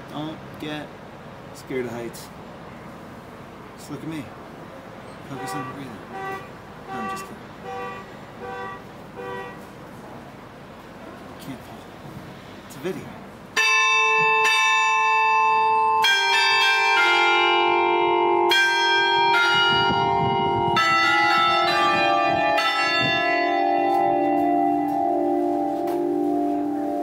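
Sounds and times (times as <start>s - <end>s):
church bells ringing: 13.5s - 27.0s.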